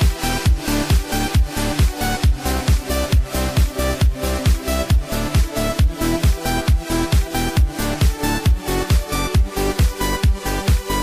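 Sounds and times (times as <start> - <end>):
electronic music with kick drum: 0.0 - 11.0.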